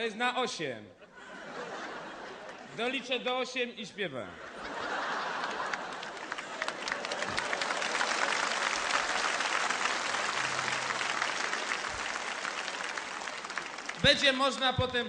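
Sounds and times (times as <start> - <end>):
audience applauding: 4.8 - 14.8.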